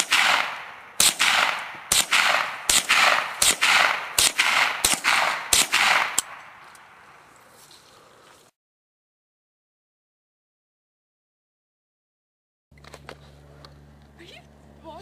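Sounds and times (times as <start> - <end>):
rifle shots with echo: 0.0 - 7.1.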